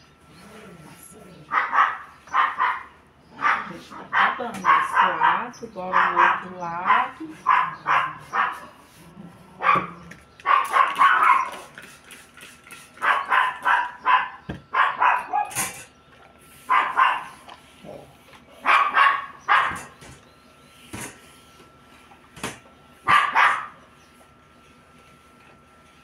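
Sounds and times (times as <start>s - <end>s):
dog barking: 1.5s - 8.8s, 9.6s - 11.7s, 13.0s - 15.6s, 16.7s - 17.4s, 18.6s - 20.0s, 23.1s - 23.8s.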